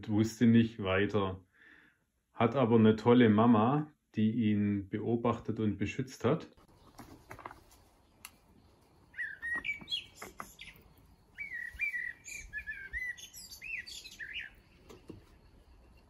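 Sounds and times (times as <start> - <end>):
kestrel sharp calls: 9.1 - 14.9.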